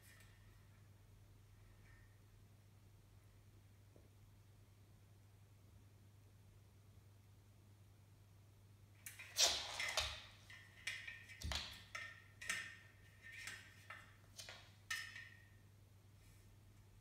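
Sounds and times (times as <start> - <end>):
cat claws scuffing floor: 9.1 - 12.6.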